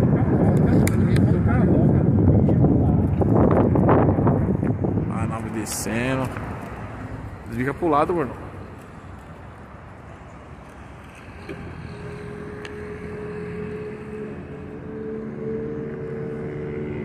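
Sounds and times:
steady engine hum: 0:00.0 - 0:17.0.

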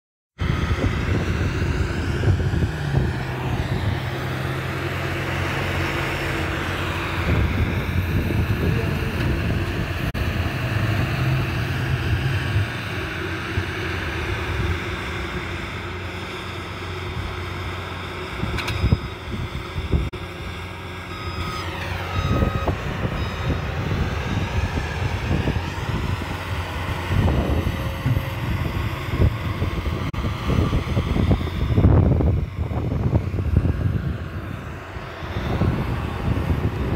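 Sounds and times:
tractor diesel engine running: 0:00.4 - 0:36.9.

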